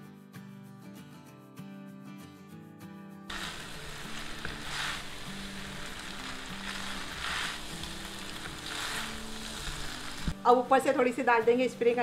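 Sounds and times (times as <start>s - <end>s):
background music: 0.0s - 12.0s
metal tongs tossing food: 3.3s - 10.4s
noodles sizzling in a pan: 3.3s - 11.0s.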